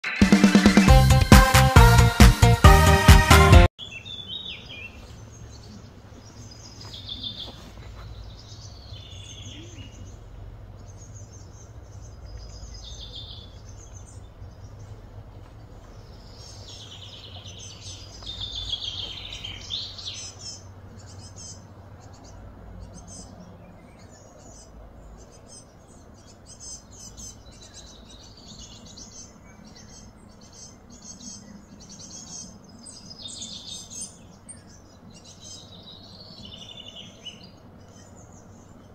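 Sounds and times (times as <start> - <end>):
birds chirping and singing: 3.8 - 38.9
steady low rumble: 9.5 - 19.7.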